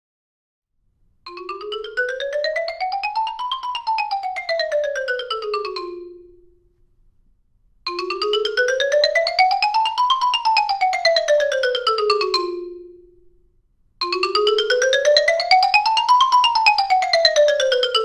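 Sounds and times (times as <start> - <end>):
xylophone rapid runs: 1.3 - 6.2, 7.9 - 12.8, 14.0 - 18.0.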